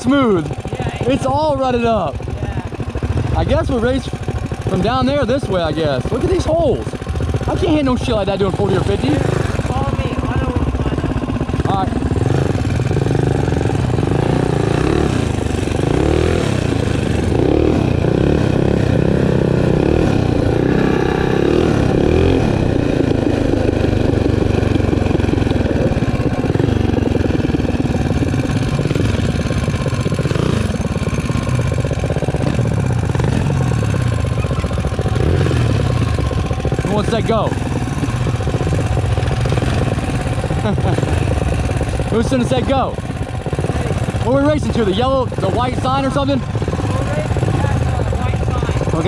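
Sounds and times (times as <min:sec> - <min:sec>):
minibike engine running: 0:00.0 - 0:49.0.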